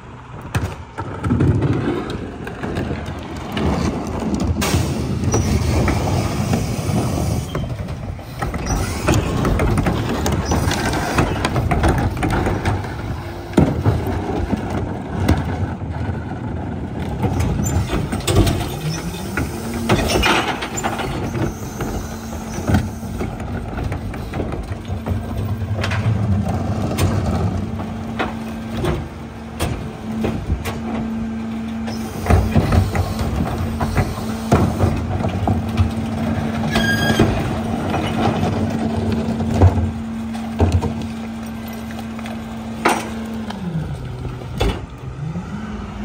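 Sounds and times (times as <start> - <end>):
garbage truck engine and hydraulics: 0.0 - 46.0
carts banging against hopper: 0.4 - 45.3.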